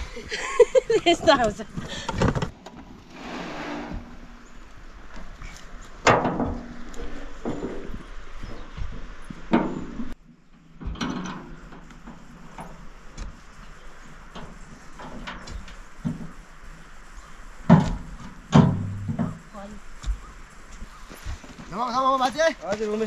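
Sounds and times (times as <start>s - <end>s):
knocks and thumps: 1.8s - 2.6s, 17.6s - 20.3s.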